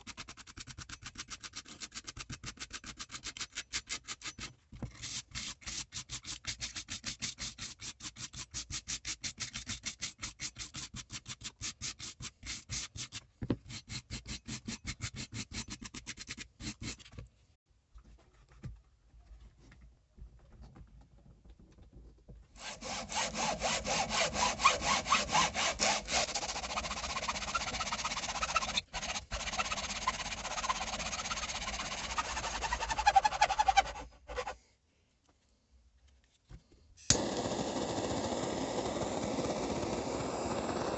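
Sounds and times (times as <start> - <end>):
hacksaw cutting wood: 5.0 - 17.0, 22.6 - 34.6, 37.1 - 40.9
wire brush scrubbing wood: 22.6 - 34.6.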